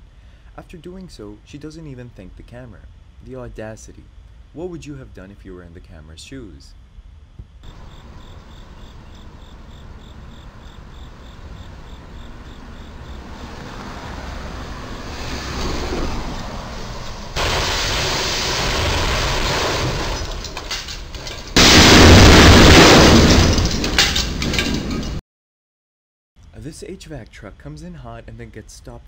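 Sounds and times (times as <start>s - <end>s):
traffic noise: 7.6s - 17.4s
truck crashing and scraping: 11.1s - 25.2s
debris clattering: 17.4s - 25.2s.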